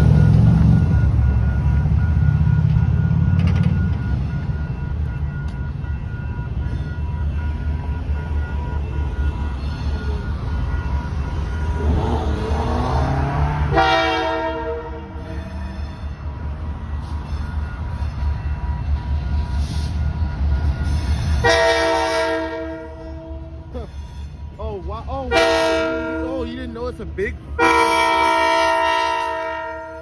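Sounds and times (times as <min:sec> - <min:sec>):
approaching train: 0:00.0 - 0:30.0
crossing warning bell dinging: 0:00.0 - 0:30.0
low rumble of traffic: 0:00.0 - 0:30.0
locomotive air horn: 0:10.7 - 0:15.8, 0:21.3 - 0:23.7, 0:25.3 - 0:26.5, 0:27.6 - 0:30.0.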